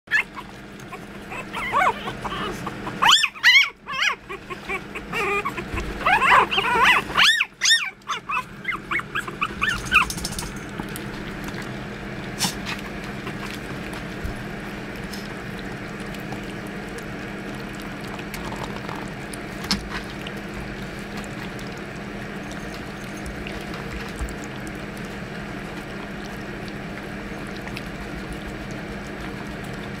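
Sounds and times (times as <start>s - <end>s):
puppies whimpering and yipping: 0.1s - 10.5s
puppies lapping and smacking: 0.1s - 30.0s.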